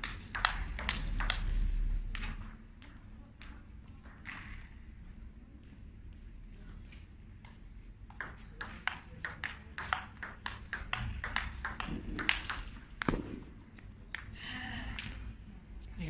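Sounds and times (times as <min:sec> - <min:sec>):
table tennis ball clicking: 0:00.0 - 0:06.3, 0:08.1 - 0:13.2.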